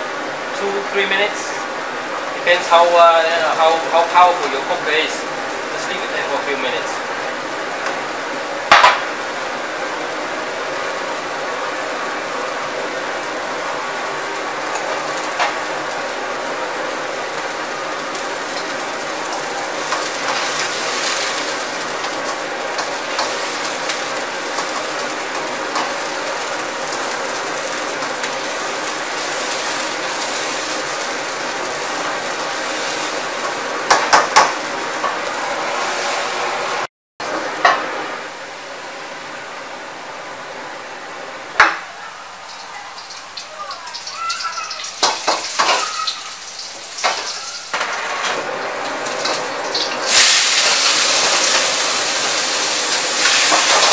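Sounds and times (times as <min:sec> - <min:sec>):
wok burner rushing: 0:00.0 - 0:53.9.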